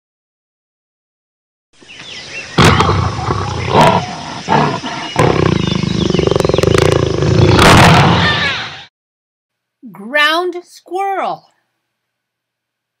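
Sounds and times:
jaguar growling: 0:02.5 - 0:08.4.

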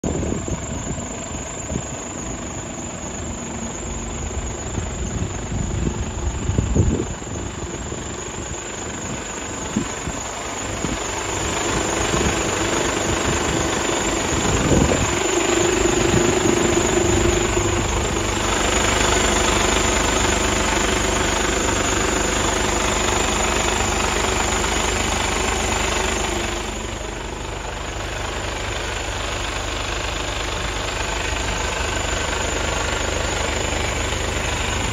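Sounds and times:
diesel engine idling: 0:00.0 - 0:34.9.

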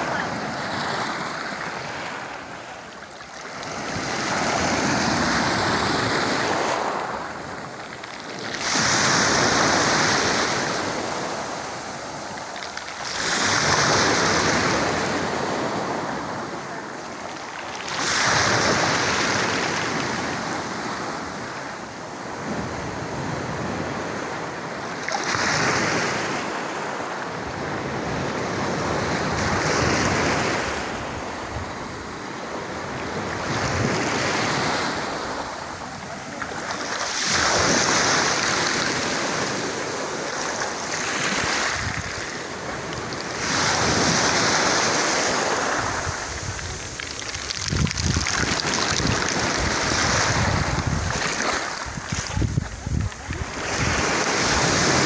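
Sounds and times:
waves breaking on a pebble beach: 0:00.0 - 0:55.0.

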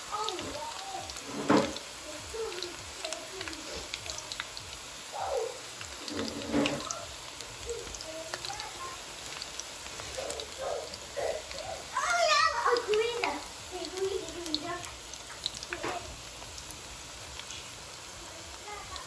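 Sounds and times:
oil sizzling with crackles: 0:00.0 - 0:19.0.

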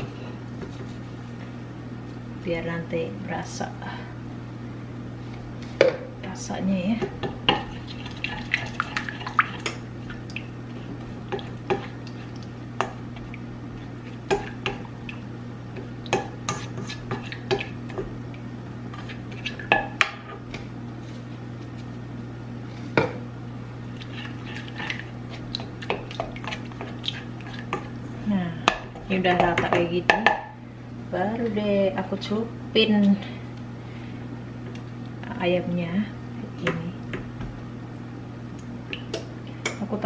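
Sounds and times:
steady low hum: 0:00.0 - 0:40.0
spatula scraping skillet: 0:16.2 - 0:17.8.

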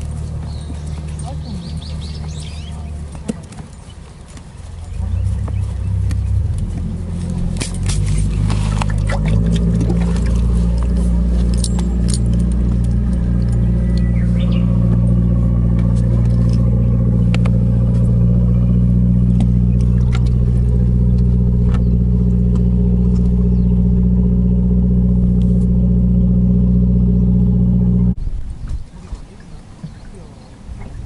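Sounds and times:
motor engine running: 0:00.0 - 0:28.2.

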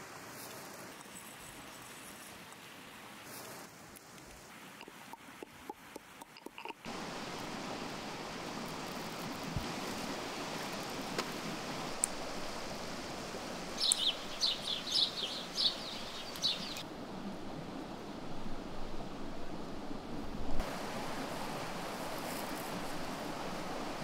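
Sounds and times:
stream rushing: 0:00.0 - 0:24.0
bird chirping: 0:13.8 - 0:16.8.

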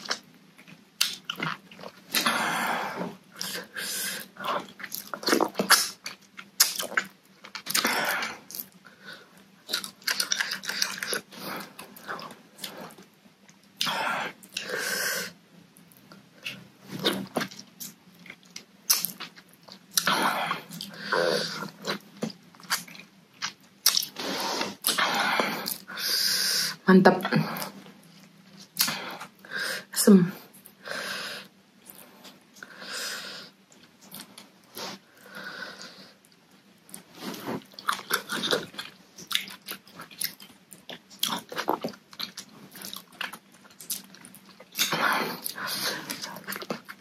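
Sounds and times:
wet chewing and lip-smacking: 0:00.0 - 0:02.3, 0:03.4 - 0:08.8, 0:09.7 - 0:14.7, 0:15.8 - 0:20.1, 0:21.6 - 0:24.2, 0:36.2 - 0:47.0.

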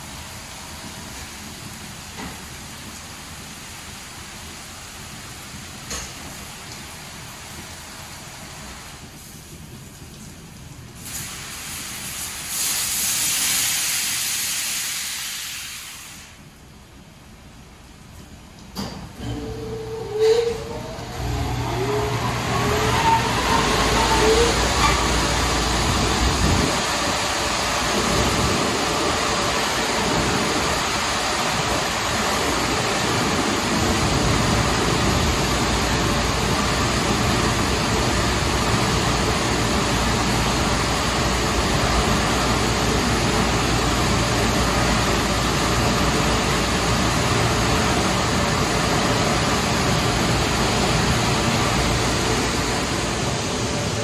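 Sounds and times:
car wash spraying water: 0:00.0 - 0:17.4, 0:21.0 - 0:54.0.

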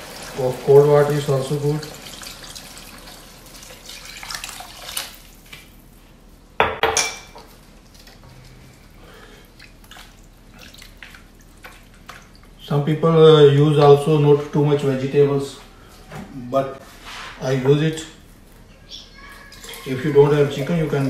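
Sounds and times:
water pouring into wok: 0:00.0 - 0:05.4
kitchenware clatter: 0:06.6 - 0:07.5.

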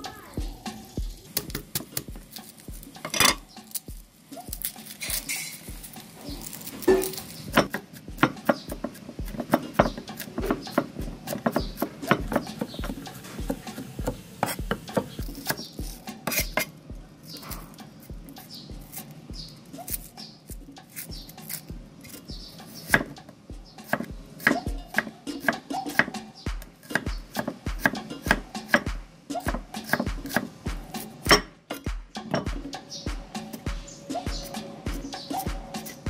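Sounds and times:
steady low beat: 0:00.0 - 0:04.6, 0:05.7 - 0:06.4, 0:07.4 - 0:19.6, 0:20.5 - 0:22.5, 0:23.4 - 0:24.9, 0:30.1 - 0:36.0
cleaver chopping on wooden board: 0:06.6 - 0:16.7, 0:23.9 - 0:32.6.

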